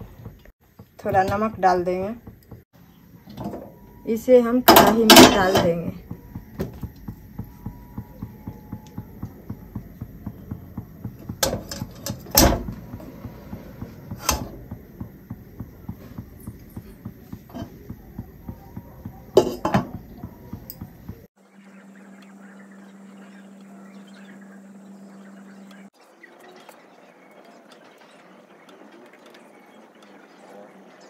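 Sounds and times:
metal cookware knocking: 4.6s - 21.0s.

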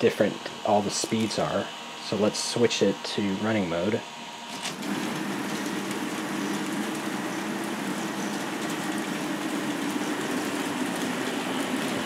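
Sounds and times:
electric motors whirring: 3.8s - 12.0s.

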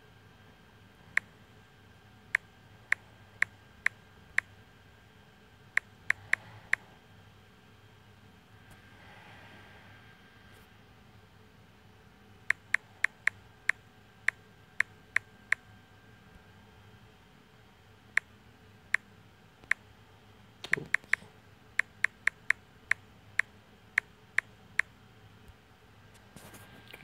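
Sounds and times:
touchscreen keyboard clicks: 20.6s - 22.6s.

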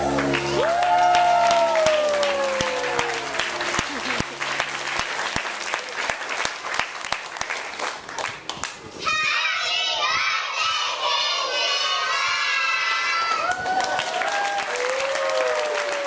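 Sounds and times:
scattered clapping: 0.0s - 8.8s.

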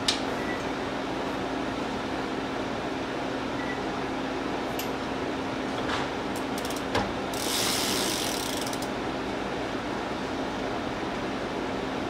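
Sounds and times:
steady background hum: 0.0s - 12.0s
rapid ratcheting clicks: 6.4s - 9.0s.

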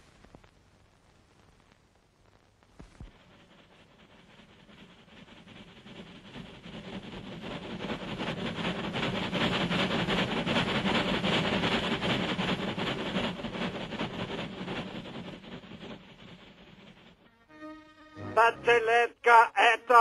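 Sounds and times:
steam locomotive chuffing: 3.1s - 17.3s.

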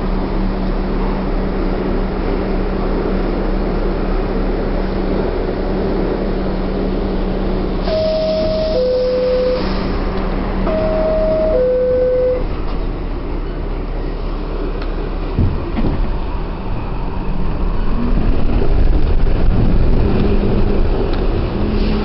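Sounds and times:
subway train rumbling in tunnel: 0.0s - 22.0s
two-note falling tone: 7.9s - 9.7s, 10.7s - 12.6s.

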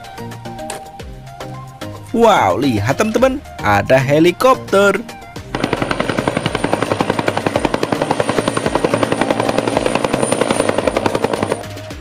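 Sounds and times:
helicopter rotor chop: 5.4s - 12.0s.

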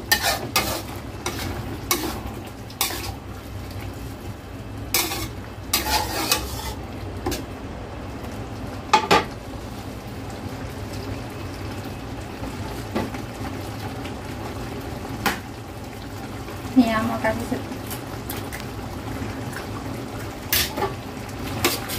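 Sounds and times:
metal spatula scraping a wok: 0.0s - 3.2s, 4.9s - 7.4s, 20.5s - 20.8s, 21.6s - 21.9s
sauce bubbling: 0.0s - 16.8s, 17.6s - 21.9s.

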